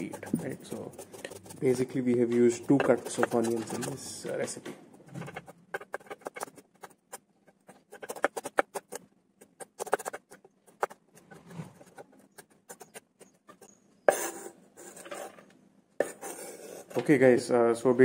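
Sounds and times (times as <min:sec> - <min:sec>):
knife blade scraping board: 0:02.5 - 0:06.6, 0:09.6 - 0:17.0.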